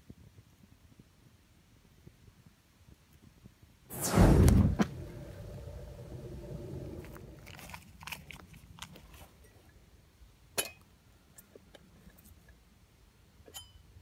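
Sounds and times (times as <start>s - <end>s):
wood crackling and popping: 4.0s - 9.3s.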